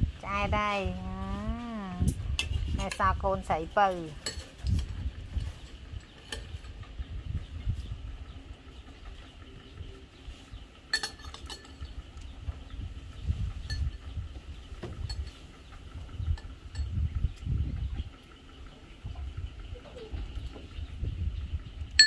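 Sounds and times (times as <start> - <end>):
pots and dishes clinking: 4.2 - 4.9, 10.9 - 11.9
low rumble: 11.8 - 22.0.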